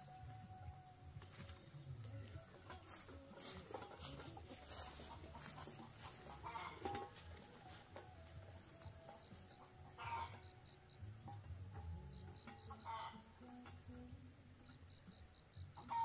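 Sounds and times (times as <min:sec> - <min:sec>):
poultry clucking: 0:02.6 - 0:13.9, 0:15.7 - 0:16.0.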